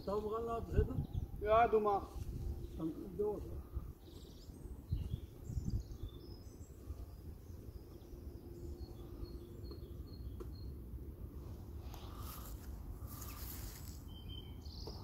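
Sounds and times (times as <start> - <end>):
small bird chirping: 4.0 - 10.8.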